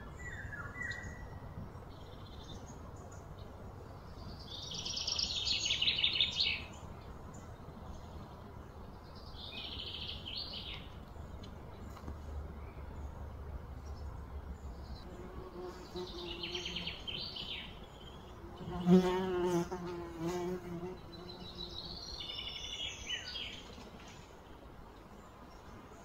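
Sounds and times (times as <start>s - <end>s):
low background rumble: 0.0s - 18.7s.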